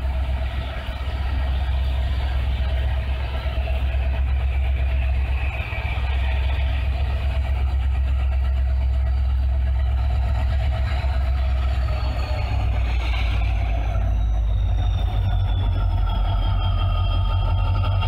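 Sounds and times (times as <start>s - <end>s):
locomotive engine rumble: 0.0s - 18.0s.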